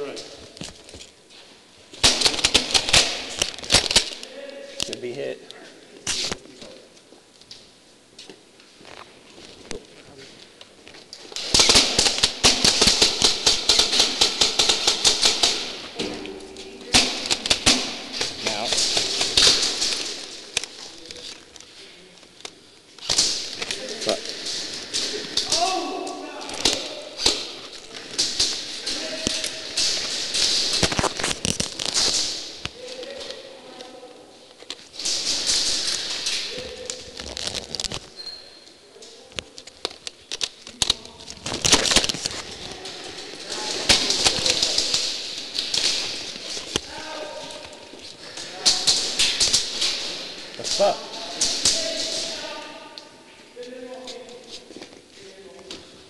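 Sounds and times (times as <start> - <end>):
pellets striking walls: 2.0 - 4.2, 11.4 - 20.6
airsoft guns shooting: 2.0 - 4.3, 11.3 - 16.3, 16.9 - 20.7, 23.0 - 32.6, 35.0 - 36.5, 43.0 - 47.6, 48.2 - 52.4
airsoft gunfire cracks: 11.4 - 15.8
pellets striking plywood: 11.4 - 16.1.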